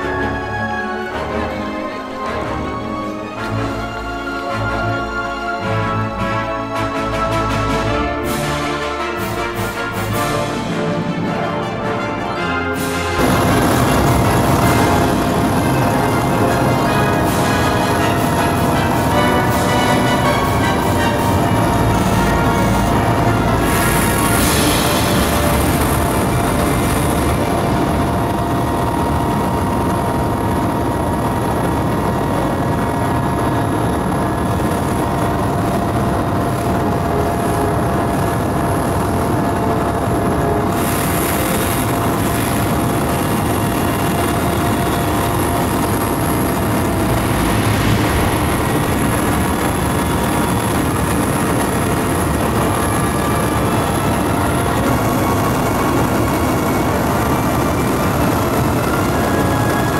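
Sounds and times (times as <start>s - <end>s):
aircraft engine drone in cabin: 13.2s - 59.9s.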